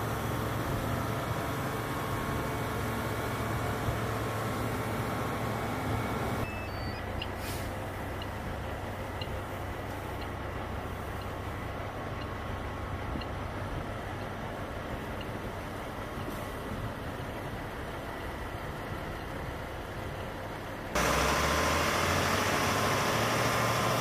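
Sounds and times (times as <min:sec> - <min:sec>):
fire truck engine running: 0:00.0 - 0:24.0
faint short high beeps: 0:06.4 - 0:07.4.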